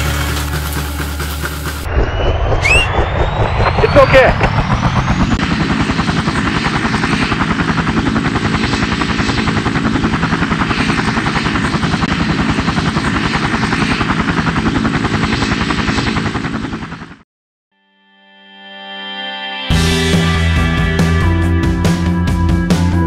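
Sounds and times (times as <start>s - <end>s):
helicopter rotor chopping: 0.0s - 17.2s.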